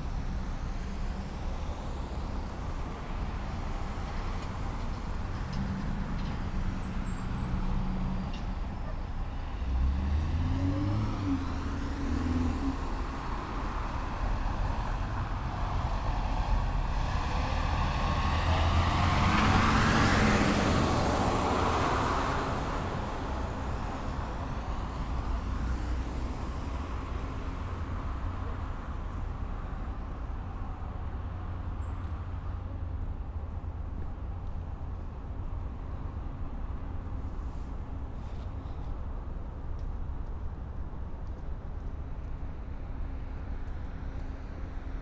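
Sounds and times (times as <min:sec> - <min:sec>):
vehicle passing close by: 0:16.8 - 0:22.9.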